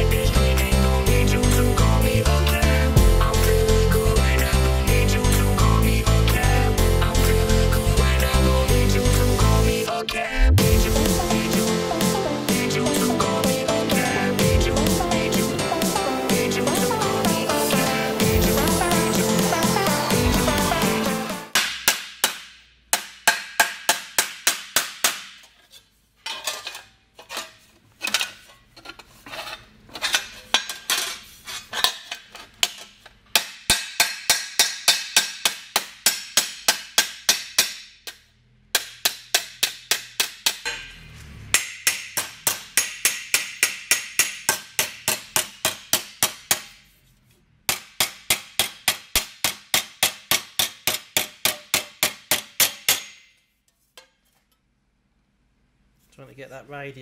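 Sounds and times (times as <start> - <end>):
hammer striking sheet steel: 21.5 - 25.6, 32.6 - 46.9, 47.7 - 53.4.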